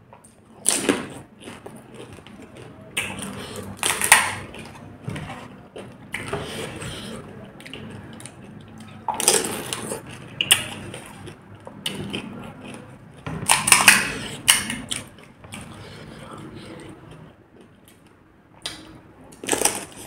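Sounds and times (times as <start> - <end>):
wet chewing and slurping: 0.6 - 17.7.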